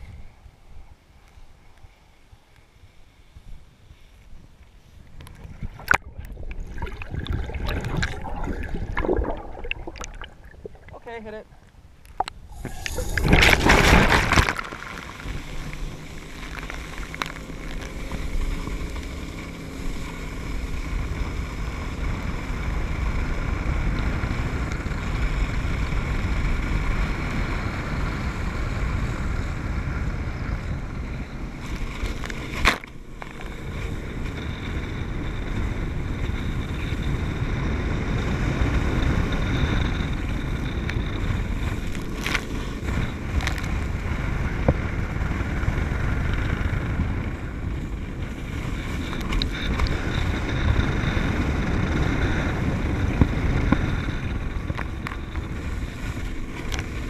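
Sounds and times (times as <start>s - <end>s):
wind buffeting the microphone: 3.2s - 57.0s
water rushing past: 5.4s - 18.4s
boat engine running: 5.4s - 57.0s.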